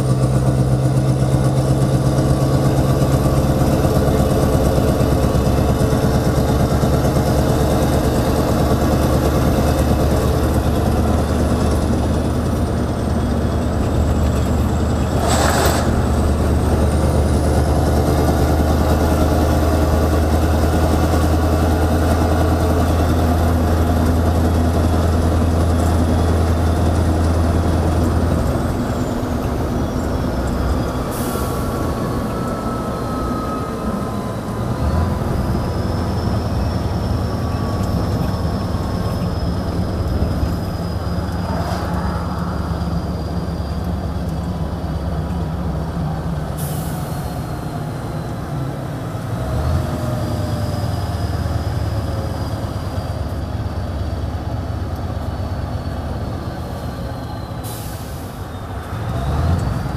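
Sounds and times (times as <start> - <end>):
truck engine through loud exhaust: 0.0 - 59.9
high turbo whistle: 28.6 - 45.2.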